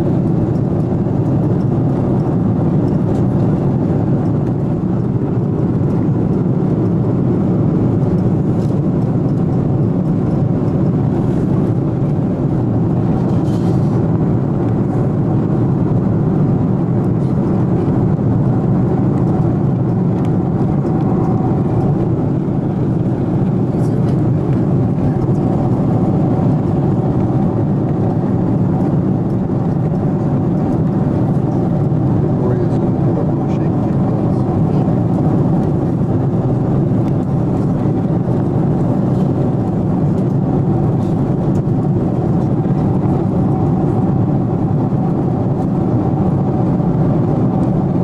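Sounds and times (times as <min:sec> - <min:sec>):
jet airliner cabin noise: 0:00.0 - 0:48.0.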